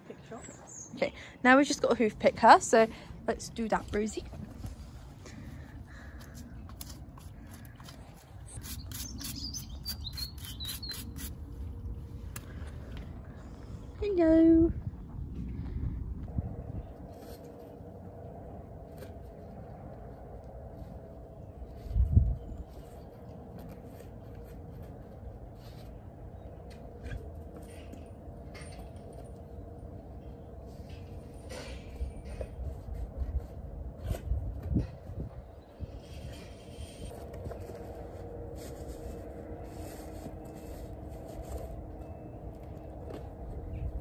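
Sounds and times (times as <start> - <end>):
small bird chirping: 8.5 - 11.3
low steady rumble: 11.2 - 44.0.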